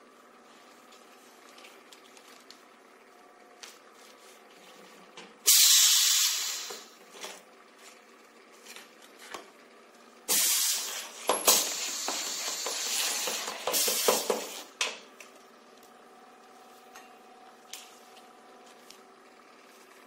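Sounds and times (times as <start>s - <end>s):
compressed air hissing: 5.5s - 6.9s, 10.3s - 14.7s.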